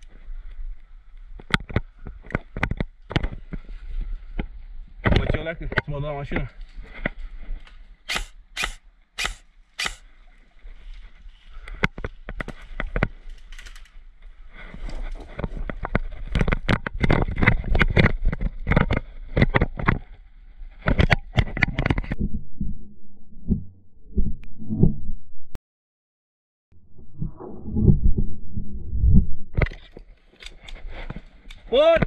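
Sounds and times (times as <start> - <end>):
airsoft gun shots: 8.1 - 10.0.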